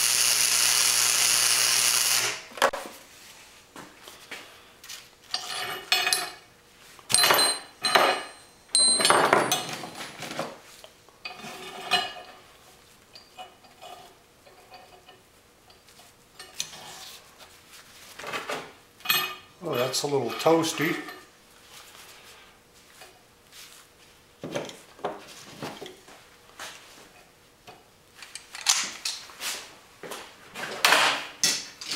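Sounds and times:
steel tools clattering on metal bench: 5.3s - 6.4s, 7.1s - 10.2s.

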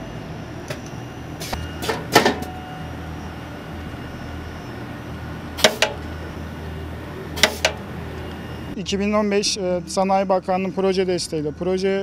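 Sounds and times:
steady low hum: 0.0s - 12.0s
pneumatic machine clacks: 5.6s - 6.1s, 7.4s - 7.8s
air bursts: 7.4s - 7.8s.

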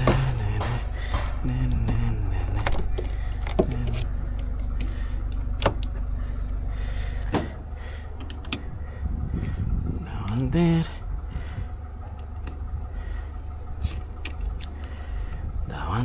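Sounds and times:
starter motor slowly cranking: 0.0s - 15.7s
sharp clicks: 13.8s - 15.0s.

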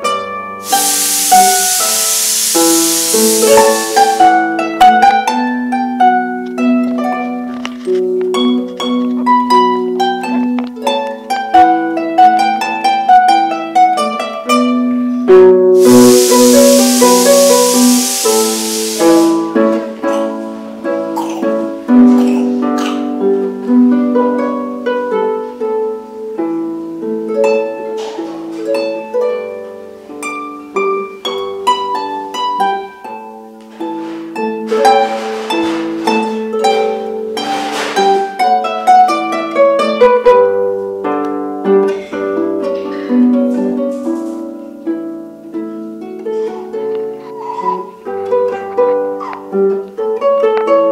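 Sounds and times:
harp melody plucked: 0.0s - 14.8s.

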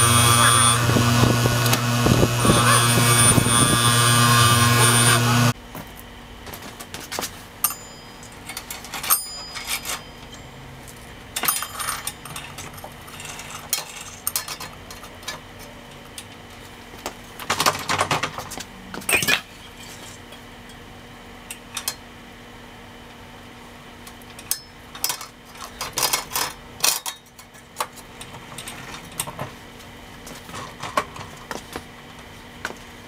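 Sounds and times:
metal chain clinking and rattling: 7.6s - 10.5s, 11.4s - 14.6s.

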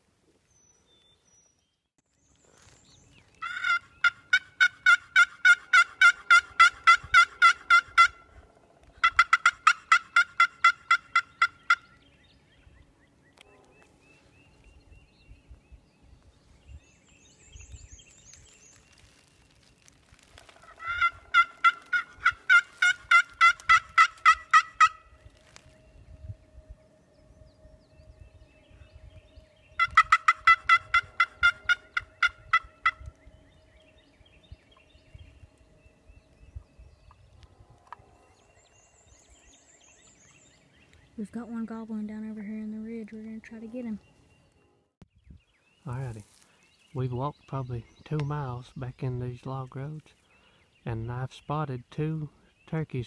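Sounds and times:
turkey call yelps: 3.4s - 8.3s, 9.0s - 11.9s, 20.6s - 25.1s, 29.8s - 33.1s.

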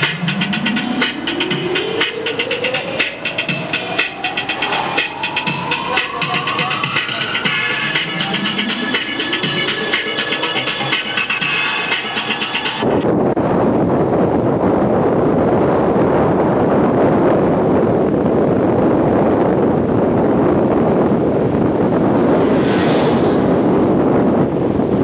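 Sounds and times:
wind rush over microphone: 12.8s - 25.0s.

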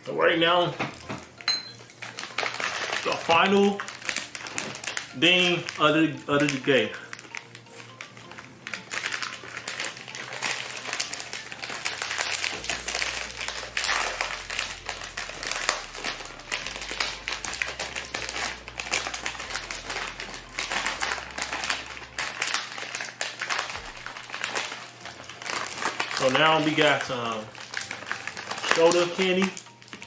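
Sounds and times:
plastic candy wrappers crinkling: 0.1s - 30.0s.

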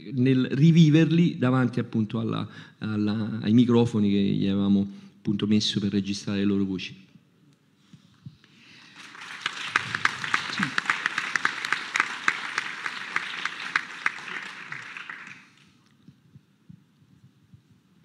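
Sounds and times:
audience applauding: 8.6s - 15.8s.

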